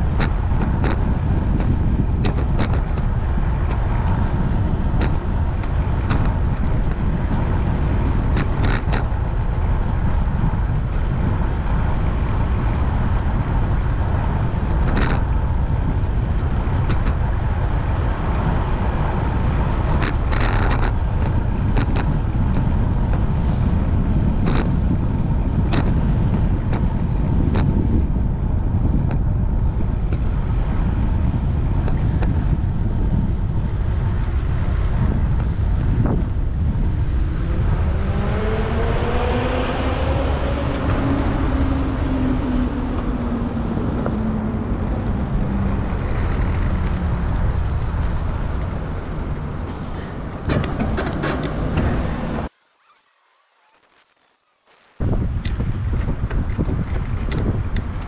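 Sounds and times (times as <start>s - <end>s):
bicycle clicks and rattles: 0.0s - 37.1s, 55.3s - 58.0s
road rumble: 0.0s - 58.0s
wind rush on microphone: 0.0s - 58.0s.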